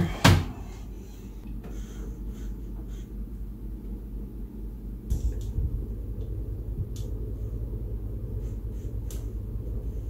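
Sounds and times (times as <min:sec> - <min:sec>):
steady low hum: 0:00.0 - 0:10.0
cables clicking and tapping: 0:05.1 - 0:07.2, 0:08.9 - 0:09.4.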